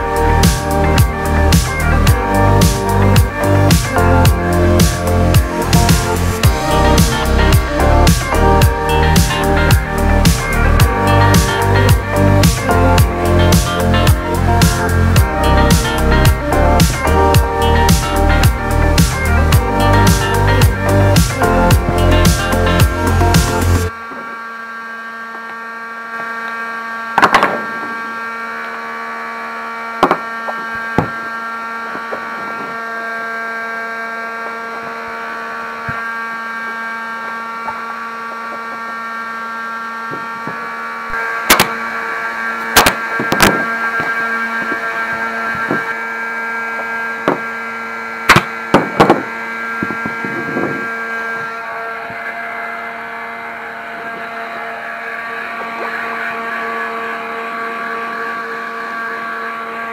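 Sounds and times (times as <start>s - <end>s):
steady hum: 0.0s - 59.9s
pneumatic staple gun firing: 25.2s - 28.9s, 29.8s - 33.0s, 40.0s - 51.4s.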